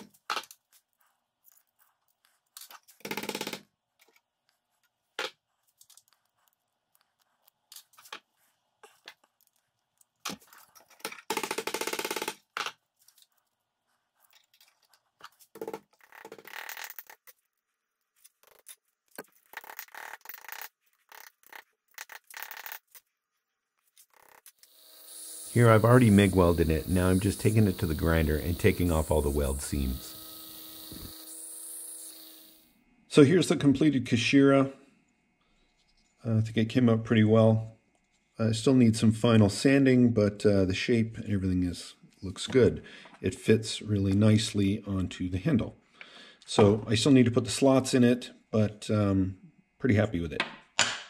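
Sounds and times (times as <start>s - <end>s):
metal strip scraping and clinking: 18.1s - 23.1s.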